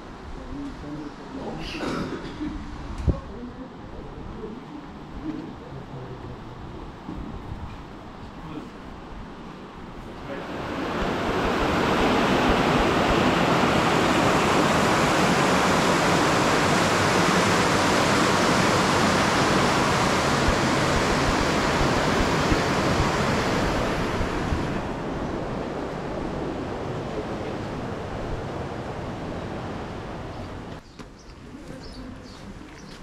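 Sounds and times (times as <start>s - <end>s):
flowing water rushing: 10.2s - 30.8s.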